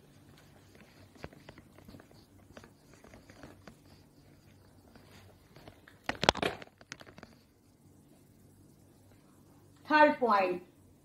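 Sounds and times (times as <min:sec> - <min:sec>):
knocks and handling noise: 0:00.3 - 0:07.5.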